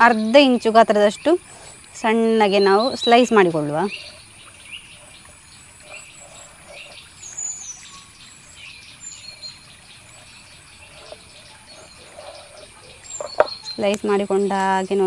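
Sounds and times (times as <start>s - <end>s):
birds chirping and calling: 0.0s - 15.0s
high insect drone: 0.0s - 15.0s.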